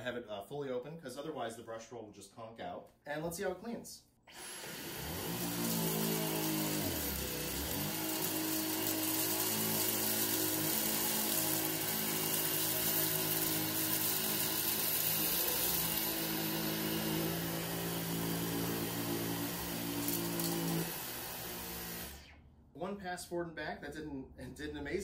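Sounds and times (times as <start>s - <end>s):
vacuum cleaner motor whine: 4.4s - 22.4s.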